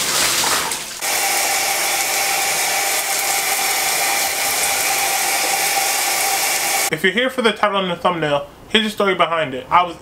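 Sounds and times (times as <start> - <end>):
water splashing: 0.0 - 6.9
small electric motor whirring: 1.0 - 6.9.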